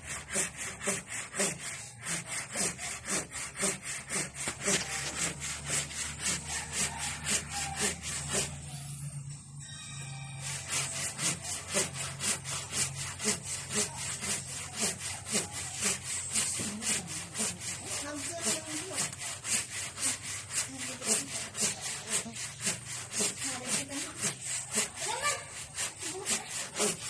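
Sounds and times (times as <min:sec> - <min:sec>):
handsaw cutting wood: 0:00.0 - 0:08.8, 0:10.4 - 0:27.0.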